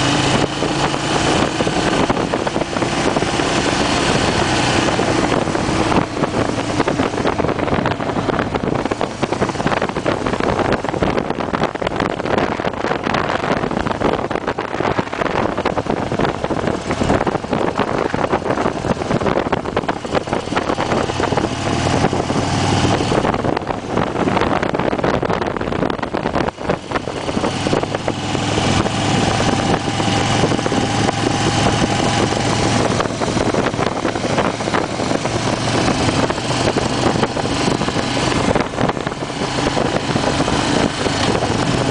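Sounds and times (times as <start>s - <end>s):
motorcycle engine running: 0.0s - 41.9s
wind rush on microphone: 0.0s - 41.9s.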